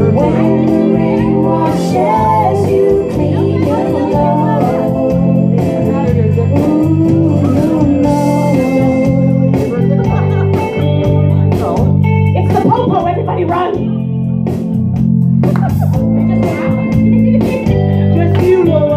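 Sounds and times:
woman singing into a microphone: 0.0 - 9.7, 16.3 - 18.9
rock backing track: 0.0 - 18.9.

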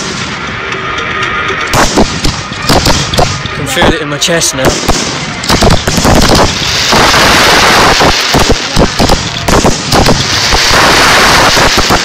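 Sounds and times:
firework shells bursting: 1.6 - 3.7, 4.6 - 12.0
dense firework hiss: 4.9 - 12.0.

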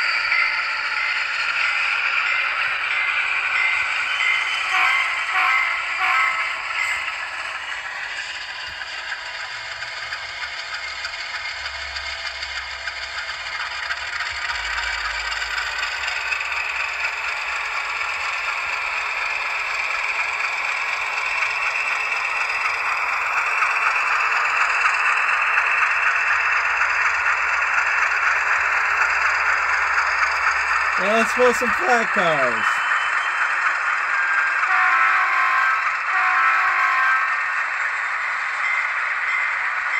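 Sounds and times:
model train diesel engine sound: 0.0 - 39.9.

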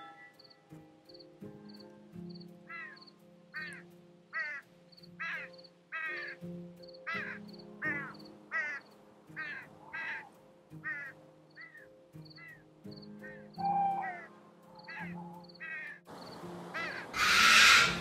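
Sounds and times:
background music with ticking beat: 0.3 - 16.1
bird calling harshly: 13.2 - 16.0, 16.8 - 18.0.

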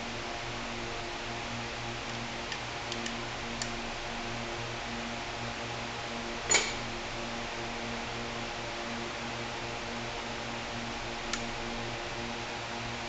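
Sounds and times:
metallic clink with ring: 6.5 - 6.8.

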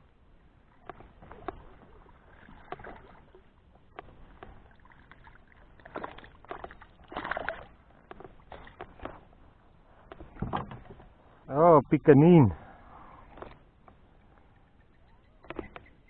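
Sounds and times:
fish splashing in water: 0.8 - 9.2
light clicks and knocks: 8.0 - 9.3.

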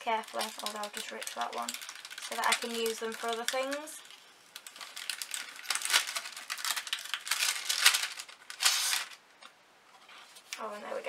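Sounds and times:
paper bag rustling and crinkling: 0.0 - 9.2.

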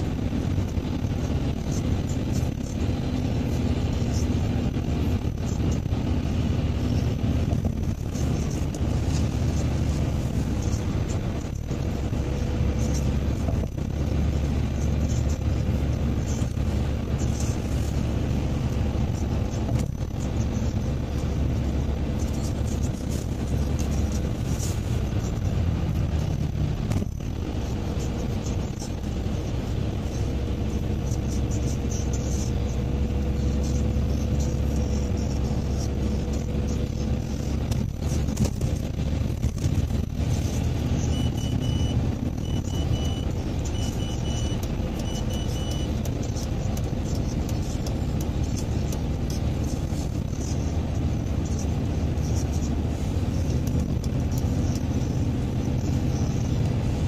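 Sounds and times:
car engine and tyre rumble: 0.0 - 57.0
short high beeps: 41.1 - 46.0.

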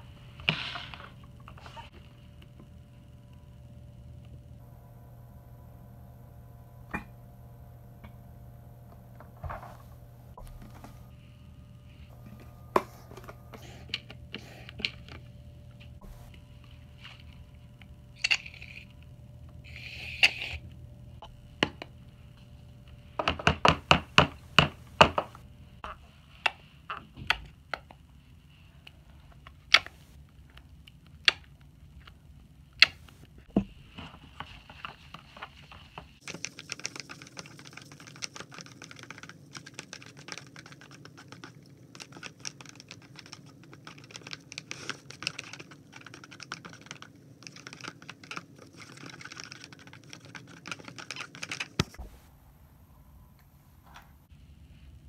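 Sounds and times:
slime being stirred in plastic tub: 33.7 - 52.1.

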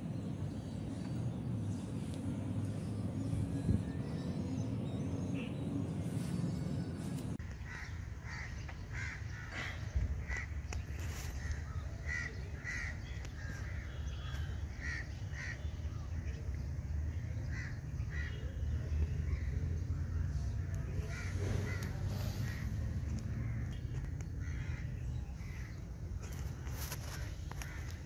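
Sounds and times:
steady low rumble: 0.0 - 28.0
birds giving harsh calls: 7.4 - 16.4, 17.0 - 28.0.

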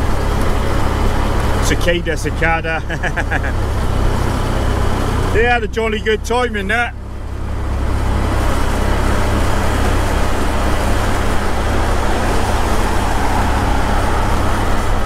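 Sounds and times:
motorcycle engine and road noise: 0.0 - 15.0
wind rushing over microphone: 7.2 - 15.0.

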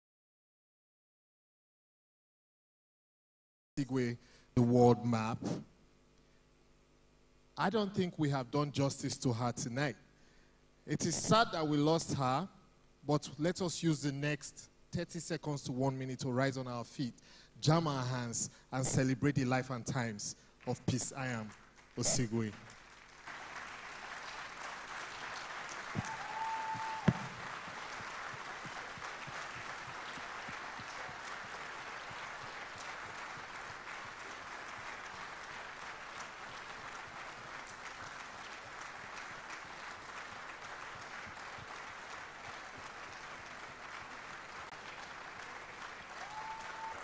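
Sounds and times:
crowd applauding: 21.2 - 47.0.

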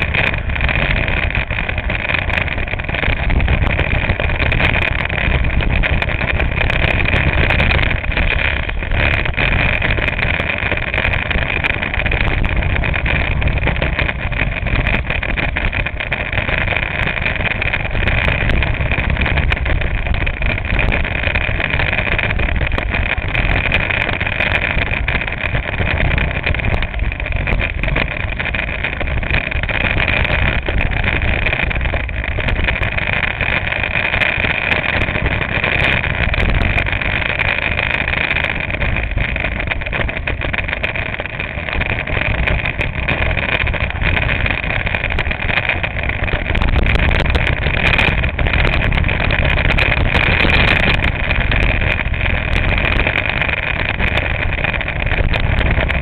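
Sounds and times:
go-kart engine running: 0.0 - 56.0
wind rumble: 0.0 - 56.0.

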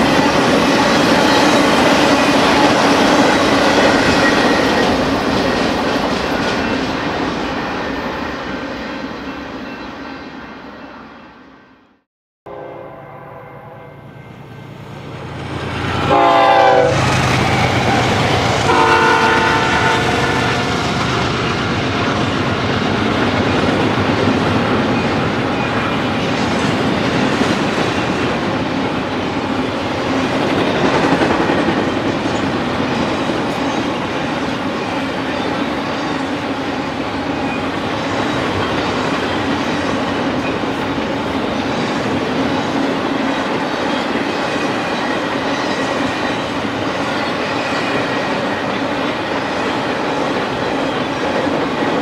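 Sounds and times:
train cars rumbling and clacking: 0.0 - 10.6, 14.6 - 52.0
locomotive horn blasts: 12.5 - 14.5, 15.9 - 17.1, 17.8 - 20.8.

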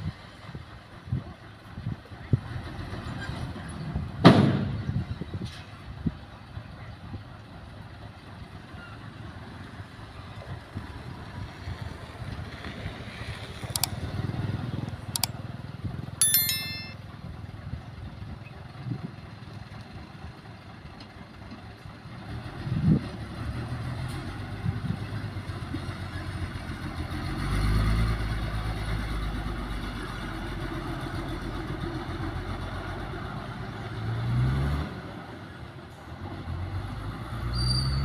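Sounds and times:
clicks: 13.7 - 14.0
short bell-like chime: 16.2 - 17.1.

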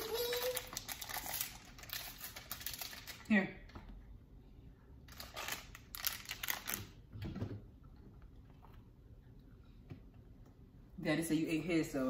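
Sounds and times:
crisp crinkles and clicks: 0.0 - 3.3, 5.1 - 6.9.

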